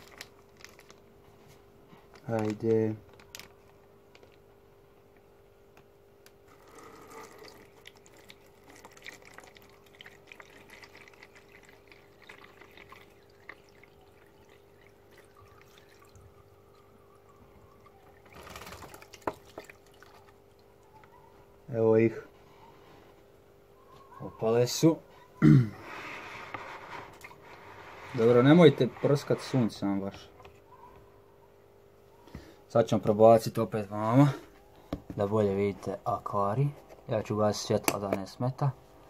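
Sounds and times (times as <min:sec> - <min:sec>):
water trickling into plastic bowl: 0:00.0 - 0:01.0, 0:06.5 - 0:16.9, 0:17.7 - 0:20.9, 0:26.6 - 0:29.2
water pouring: 0:06.5 - 0:16.8, 0:17.8 - 0:20.7.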